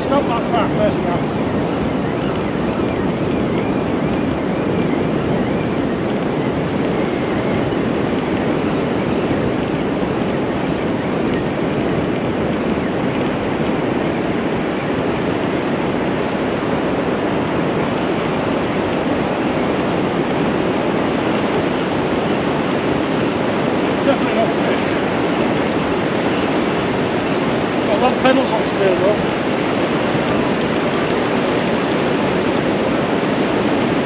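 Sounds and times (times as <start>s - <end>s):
sea surf breaking: 18.5s - 34.0s.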